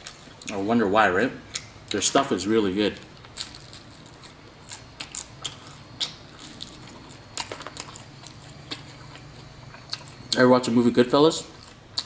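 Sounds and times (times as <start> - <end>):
crunchy chewing: 3.0 - 10.4, 11.4 - 12.0.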